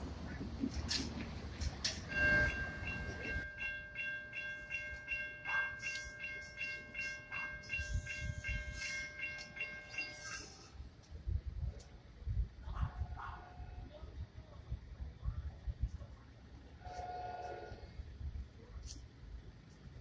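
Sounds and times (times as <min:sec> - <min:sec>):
crossing bells dinging rapidly: 0:02.1 - 0:10.6.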